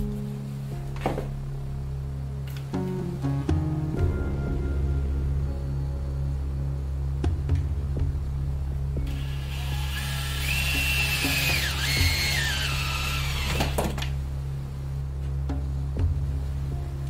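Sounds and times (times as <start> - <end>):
background music: 0.0 - 17.0
cordless drill drilling into wood: 9.1 - 14.0.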